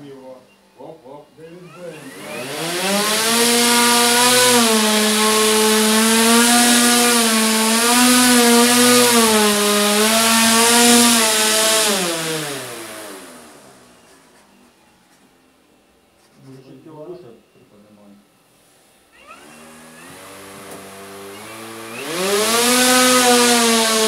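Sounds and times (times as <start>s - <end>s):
drone propeller motor whine: 1.6s - 14.2s, 19.1s - 24.0s.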